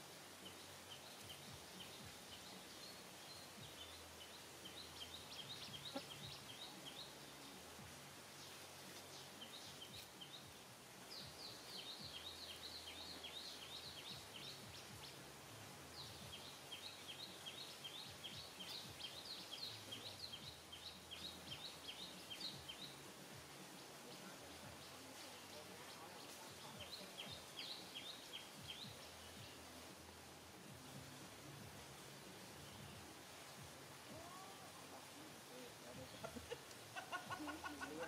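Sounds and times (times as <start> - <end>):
bird chirping: 0.0 - 30.0.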